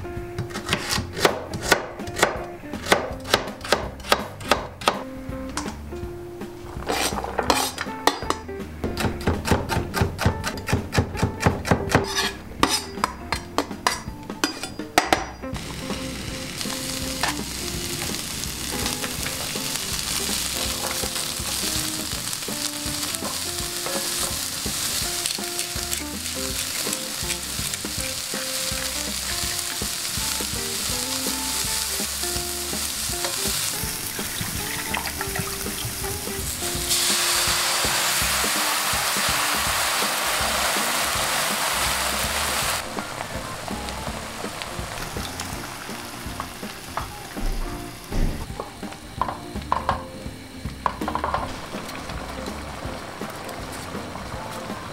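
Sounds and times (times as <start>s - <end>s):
knife chopping on plastic board: 0.4s - 5.1s, 8.3s - 14.0s
wooden spatula stirring: 6.6s - 7.9s
vegetables sizzling in frying pan: 15.6s - 54.9s.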